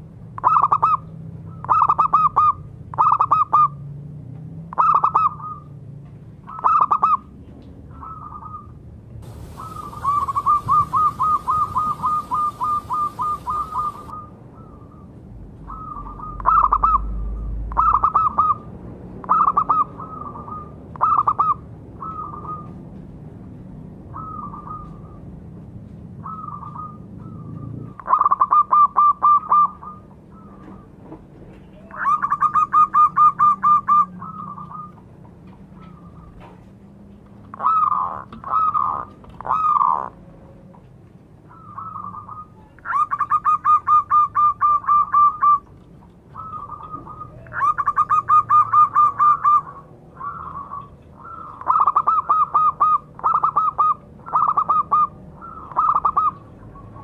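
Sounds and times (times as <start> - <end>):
dove cooing: 8.0 - 14.9, 37.5 - 40.2, 46.3 - 57.0.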